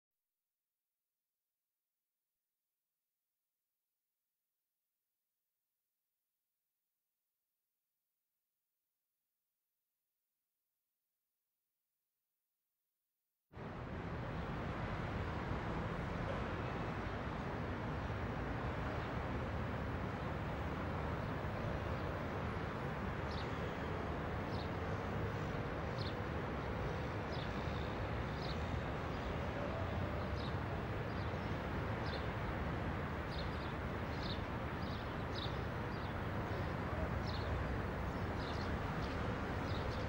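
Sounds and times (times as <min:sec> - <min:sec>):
city traffic rumble: 0:13.6 - 0:40.0.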